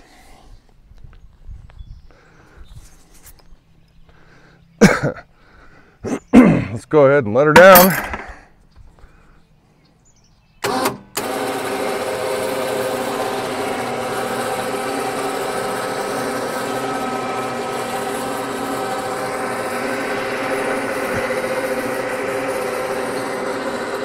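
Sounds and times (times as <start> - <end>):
electric winch running: 10.6 - 24.0.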